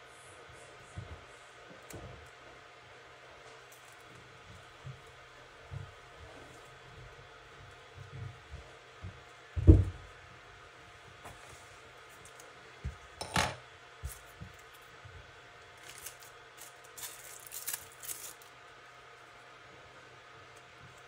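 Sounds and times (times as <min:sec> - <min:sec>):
plastic bag crinkling: 0:15.7 - 0:18.6.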